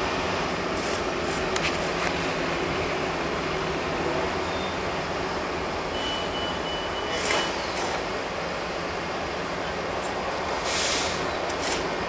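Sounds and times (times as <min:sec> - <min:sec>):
train cars rumbling on track: 0:00.0 - 0:12.0
high wheel squeal: 0:04.3 - 0:08.4.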